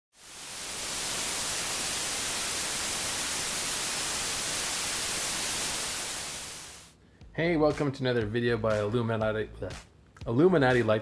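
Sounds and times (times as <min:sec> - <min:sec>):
television static hiss: 0:00.2 - 0:06.9.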